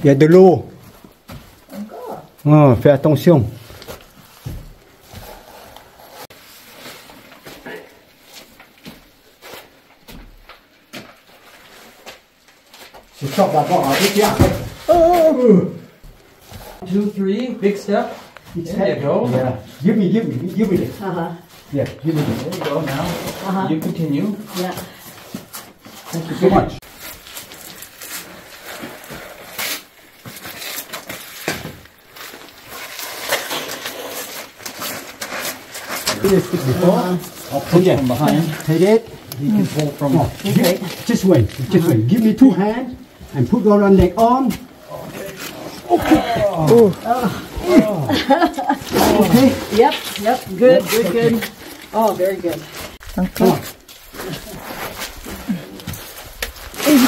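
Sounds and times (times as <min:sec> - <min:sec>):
cloth rustling: 0:26.8 - 0:57.0
shoes scraping on rock: 0:26.8 - 0:57.0.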